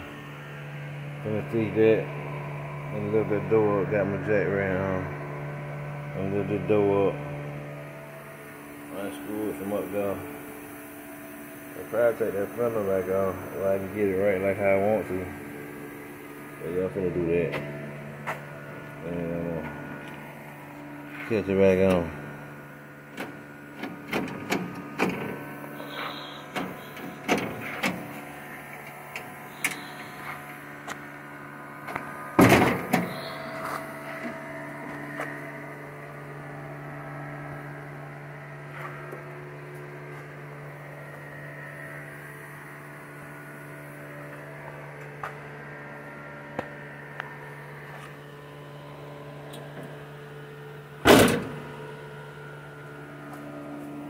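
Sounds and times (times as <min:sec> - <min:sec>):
fan humming: 0:00.0 - 0:54.0
knocks and clanks on car panels: 0:32.4 - 0:33.1.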